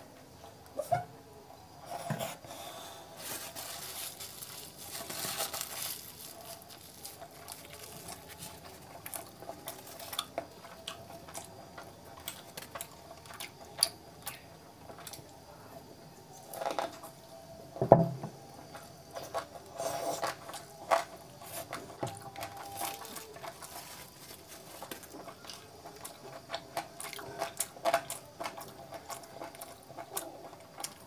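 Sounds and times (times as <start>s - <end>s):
chewing with wet mouth clicks: 9.1s - 15.3s.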